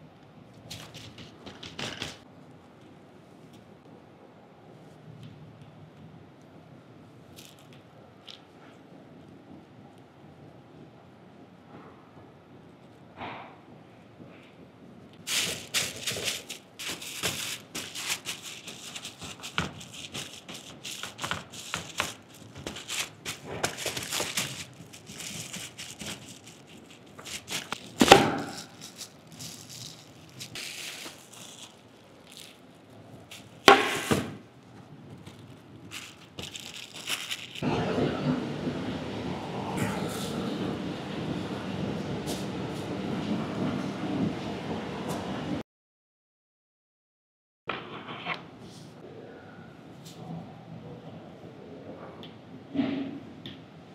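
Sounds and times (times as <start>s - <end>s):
parchment paper crinkling: 15.2s - 37.6s
freezer hum: 15.2s - 42.4s
meat squelching: 15.3s - 32.7s.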